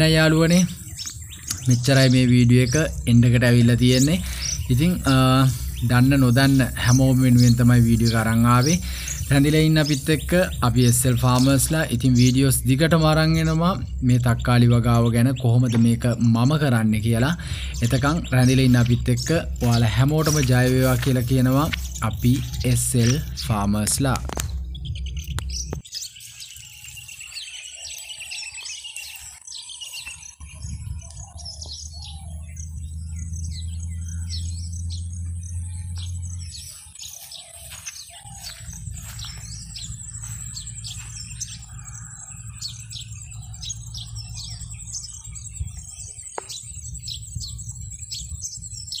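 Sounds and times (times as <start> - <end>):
small birds chirping: 0.0 - 49.0
low rumble: 30.4 - 37.2, 38.2 - 48.9
steady high buzz: 32.1 - 48.8.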